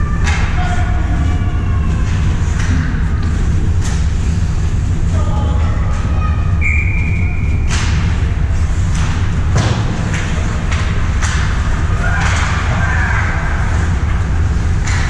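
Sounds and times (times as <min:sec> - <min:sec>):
low rink rumble: 0:00.0 - 0:15.0
hockey sticks and puck clacking: 0:08.8 - 0:15.0.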